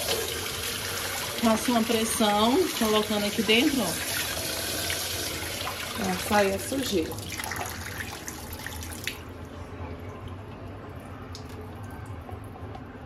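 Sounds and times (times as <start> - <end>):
water dripping: 10.1 - 12.9.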